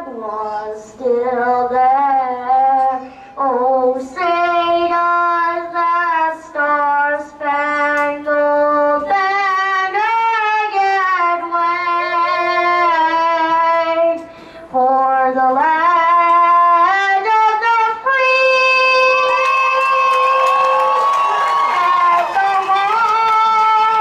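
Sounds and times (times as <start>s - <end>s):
high solo voice singing: 0.0s - 20.9s
singer breathing: 3.0s - 3.4s, 14.2s - 14.8s.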